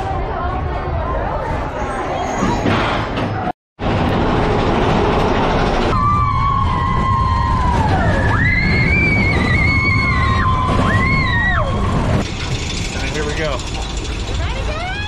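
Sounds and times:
roller coaster rumbling on track: 0:00.0 - 0:15.0
roller coaster riders screaming: 0:04.8 - 0:13.1.

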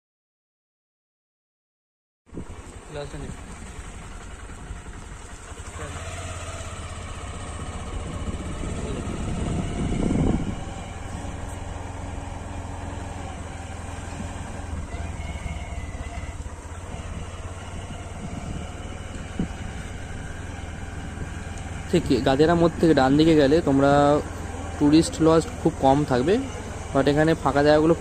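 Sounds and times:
motorcycle engine running: 0:02.3 - 0:28.0
tyre and wind noise: 0:07.5 - 0:24.6.

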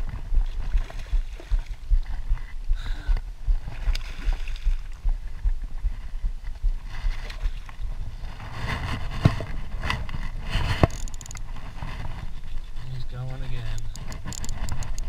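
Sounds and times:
low microphone rumble: 0:00.0 - 0:15.0
water splashing and sloshing: 0:00.0 - 0:15.0.

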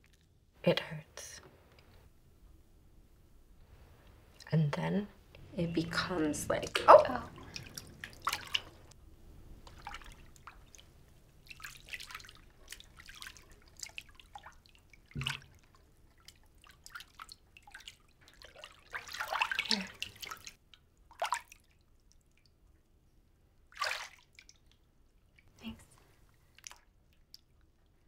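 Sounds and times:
water dripping in bathtub: 0:05.3 - 0:09.0, 0:09.6 - 0:28.0
hands splashing bathwater: 0:06.6 - 0:09.0, 0:09.6 - 0:22.4, 0:23.7 - 0:24.7.

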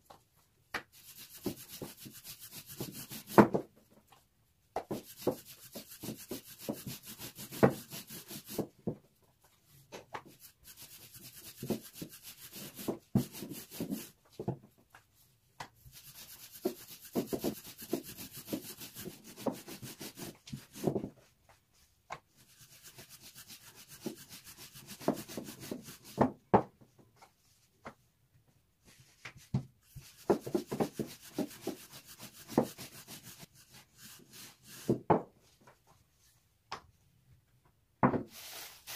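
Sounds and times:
rolling pin rubbing on dough: 0:00.9 - 0:03.5, 0:04.9 - 0:08.8, 0:10.3 - 0:14.2, 0:15.8 - 0:21.0, 0:22.4 - 0:26.3, 0:29.8 - 0:35.1.

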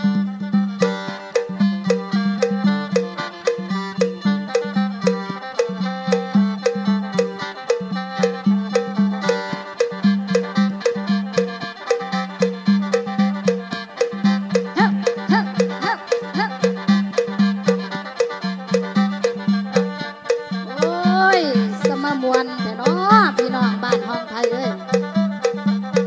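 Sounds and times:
instrumental folk band music: 0:00.0 - 0:26.0.

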